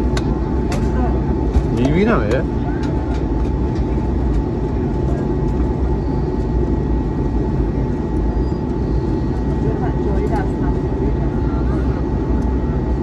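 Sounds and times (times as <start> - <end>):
jet engine rumble: 0.0 - 13.0.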